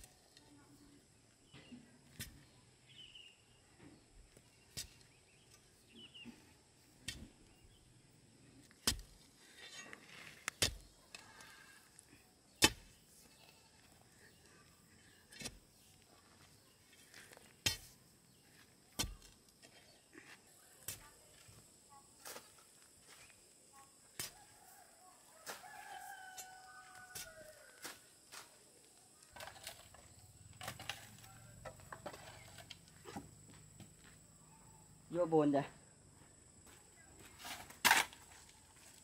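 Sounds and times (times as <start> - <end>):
scraping: 29.3 - 33.3.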